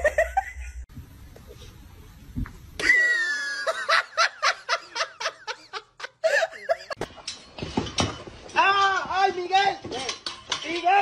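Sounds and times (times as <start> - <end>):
person laughing: 0.0 - 0.8, 2.8 - 7.0.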